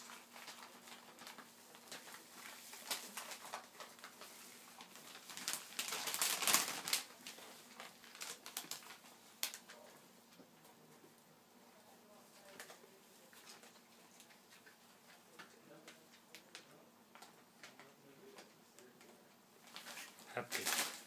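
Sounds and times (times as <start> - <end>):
foil bag crinkling: 0.0 - 9.8, 19.6 - 21.0.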